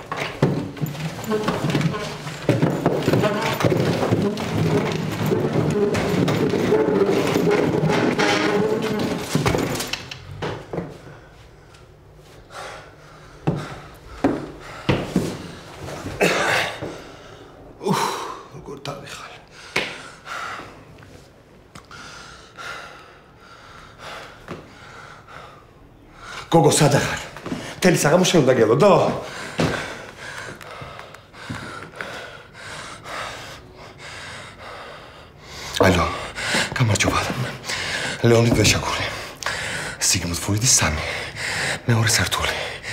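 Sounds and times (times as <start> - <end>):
footsteps on wooden floor: 0.0 - 11.1, 13.4 - 17.2, 26.9 - 32.2, 35.8 - 39.6
man breathing heavily: 10.8 - 18.5, 19.4 - 21.2, 21.8 - 26.6, 29.2 - 40.0, 40.8 - 42.9.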